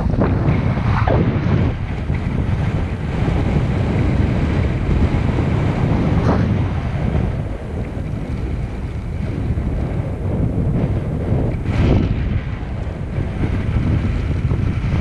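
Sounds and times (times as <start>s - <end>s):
rising whoosh: 0.0s - 2.2s, 5.9s - 7.2s
wind buffeting microphone: 0.0s - 15.0s.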